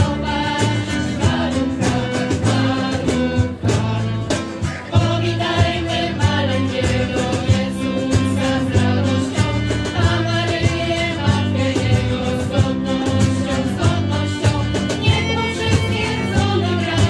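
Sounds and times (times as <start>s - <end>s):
acoustic guitar: 0.0s - 17.0s
bass line: 0.0s - 17.0s
choir singing a carol: 0.0s - 17.0s
steady percussion beat: 0.0s - 17.0s
violin: 5.0s - 17.0s.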